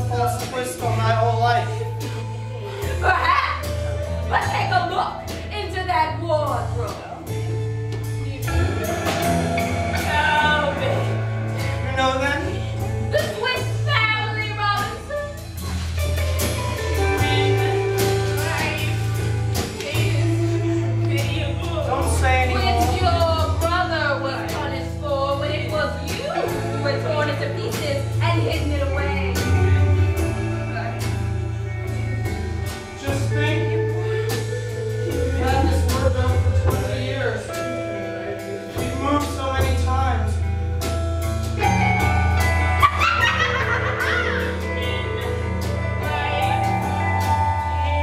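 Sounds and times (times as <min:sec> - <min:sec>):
drum beat: 0:00.0 - 0:31.4
bass line: 0:00.0 - 0:48.0
drum hits: 0:07.9 - 0:11.8
person singing: 0:15.0 - 0:28.2, 0:33.0 - 0:39.0.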